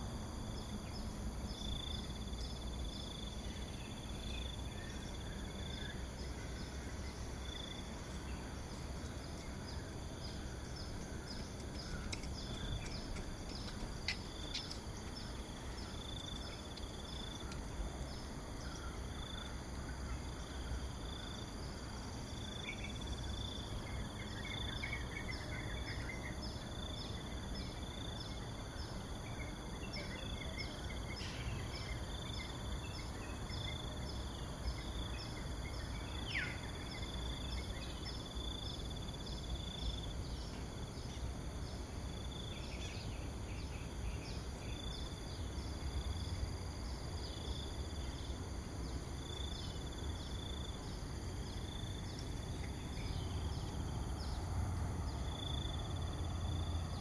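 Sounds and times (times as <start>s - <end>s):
insects trilling: 0.0s - 57.0s
bird calls: 3.7s - 21.4s
rapid high ticks: 10.8s - 15.4s.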